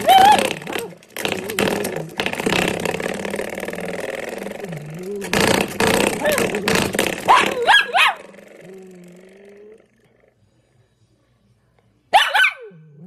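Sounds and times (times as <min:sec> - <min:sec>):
spring door stopper twanging: 0:00.0 - 0:08.9.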